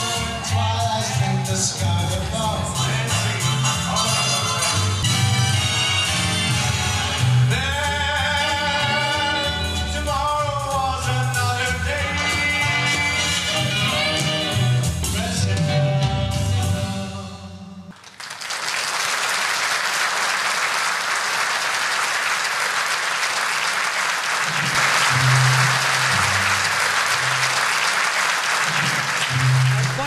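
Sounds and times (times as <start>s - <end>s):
live music with man singing: 0.0s - 17.8s
audience applause: 17.9s - 30.0s.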